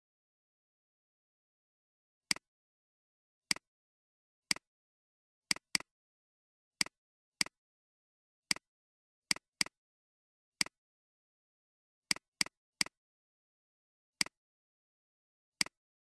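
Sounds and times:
computer mouse clicks: 0:05.5 - 0:05.9.

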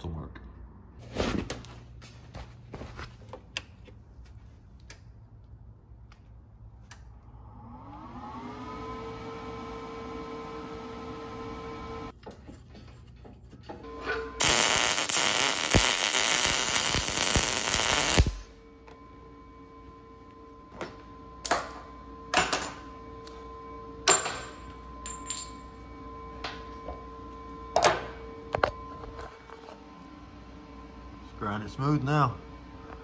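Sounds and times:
welder arc buzzing: 0:13.9 - 0:18.6.

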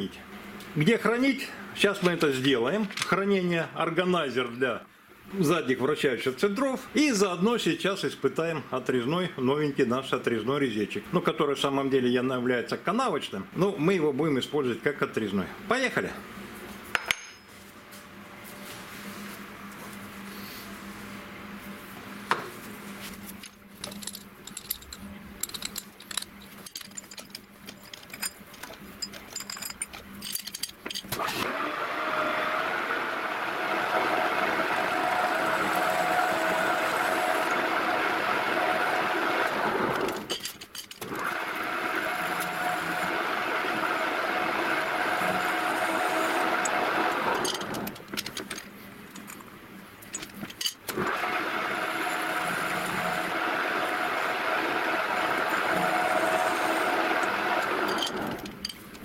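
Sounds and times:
metal tool clatter: 0:23.8 - 0:31.1, 0:40.2 - 0:41.0, 0:50.1 - 0:50.8, 0:57.9 - 0:59.0
lathe cutting metal whine: 0:31.5 - 0:39.5, 0:41.2 - 0:47.4, 0:51.0 - 0:58.4.

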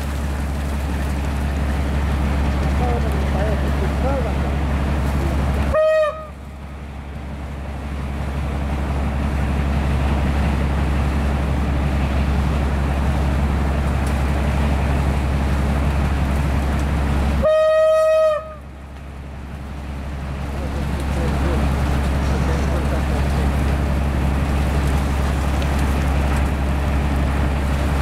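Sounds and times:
snowplow train rumble: 0:00.0 - 0:28.0
train horn blasts: 0:05.7 - 0:06.4, 0:17.4 - 0:18.7.

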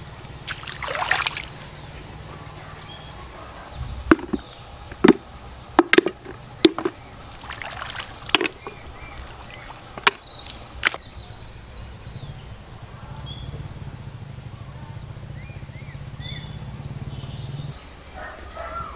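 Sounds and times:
high fast chirping: 0:00.0 - 0:05.6
clam shells clacking in metal bucket: 0:05.8 - 0:07.0, 0:07.6 - 0:08.8.

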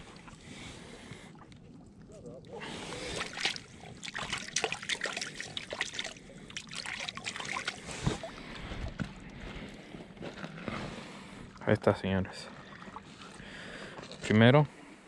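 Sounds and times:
water splashing on rocky shore: 0:02.7 - 0:08.4.

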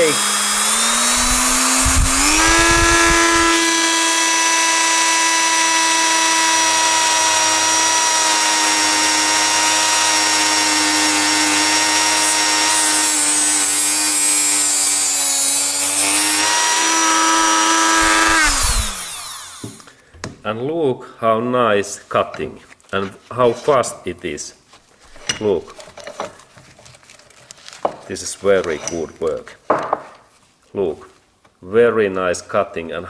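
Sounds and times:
rotary tool cutting steel wire: 0:00.0 - 0:19.7.

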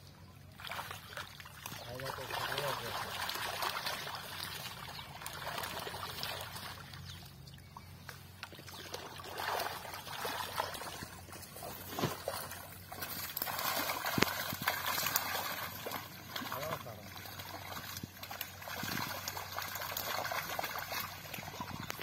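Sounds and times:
water splashing and trickling: 0:00.0 - 0:22.0
fish thrashing in net: 0:09.0 - 0:16.5.

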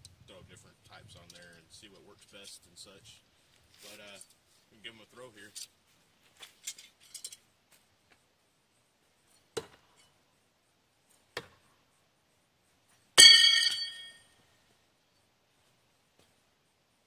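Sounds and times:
knife metallic clang: 0:13.2 - 0:14.2
blade ringing: 0:13.2 - 0:14.3.

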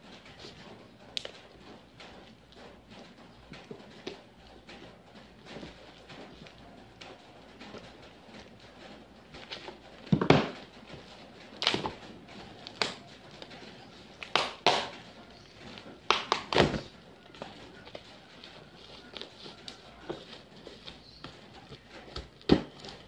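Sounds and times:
plastic wrapping tearing and crinkling: 0:04.8 - 0:23.0.

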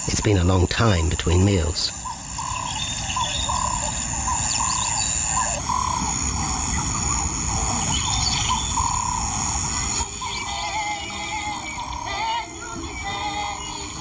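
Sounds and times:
insects shrilling: 0:00.0 - 0:14.0
short wavering calls: 0:00.0 - 0:14.0
music: 0:10.0 - 0:14.0.

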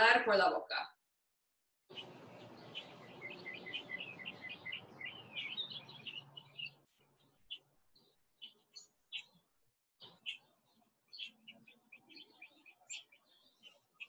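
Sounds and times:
faint steady outdoor hiss: 0:01.9 - 0:06.8
birds chirping: 0:01.9 - 0:14.0.

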